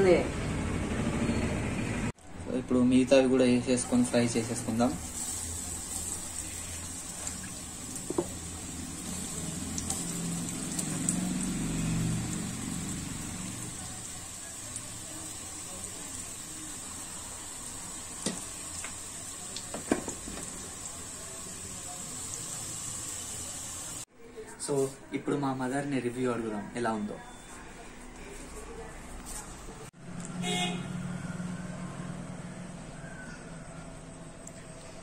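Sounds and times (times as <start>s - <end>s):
food sizzling in oil: 3.7s - 24.1s.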